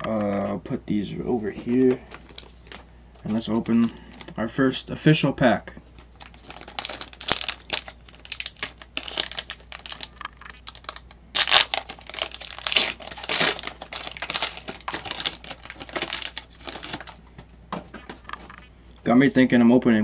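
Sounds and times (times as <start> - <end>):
foil wrapper crinkling and tearing: 2.1 - 4.4, 6.0 - 17.3.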